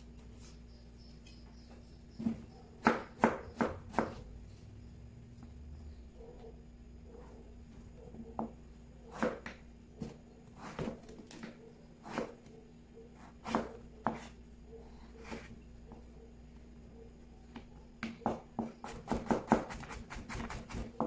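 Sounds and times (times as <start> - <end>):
knife chopping on cutting board: 2.2 - 4.2, 9.1 - 11.4, 12.0 - 12.4, 13.4 - 14.4, 18.2 - 21.0.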